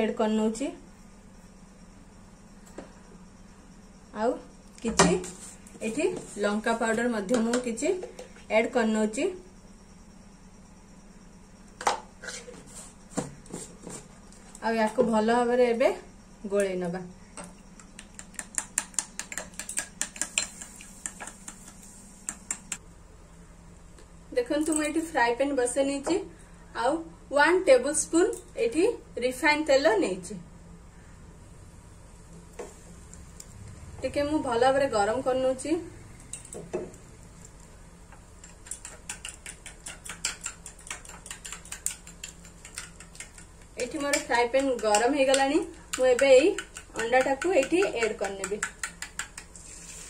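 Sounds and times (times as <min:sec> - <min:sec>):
spoon beating eggs in glass bowl: 0:17.8 - 0:22.8, 0:37.4 - 0:49.7.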